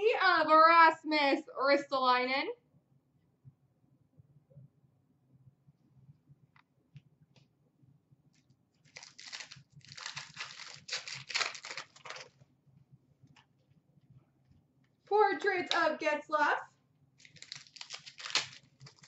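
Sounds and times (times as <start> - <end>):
foil wrapper tearing and crinkling: 8.8 - 12.4, 17.2 - 19.0.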